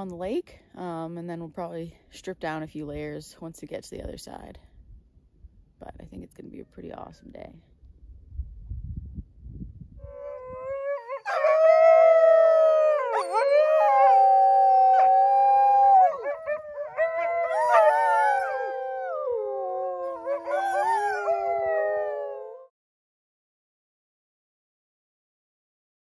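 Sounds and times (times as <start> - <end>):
sled dogs howling: 10.1 - 22.7.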